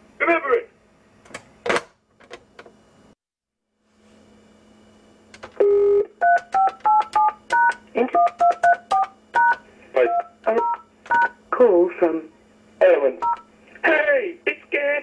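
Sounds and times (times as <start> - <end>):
long telephone beep: 5.6 - 11.3.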